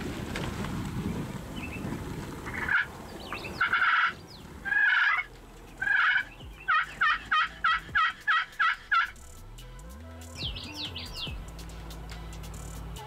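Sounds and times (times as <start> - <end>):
turkey gobbling: 2.4 - 9.3.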